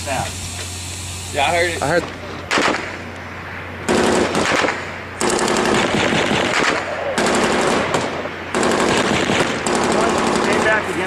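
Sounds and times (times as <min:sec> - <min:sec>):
machine-gun fire bursts: 0:02.5 - 0:03.0, 0:03.9 - 0:11.0.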